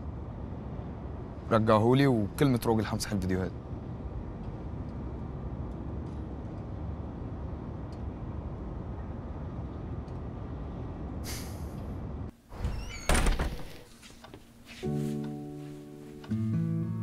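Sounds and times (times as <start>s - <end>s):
street traffic rumble: 0.0s - 12.4s
sharp hiss: 11.2s - 11.8s.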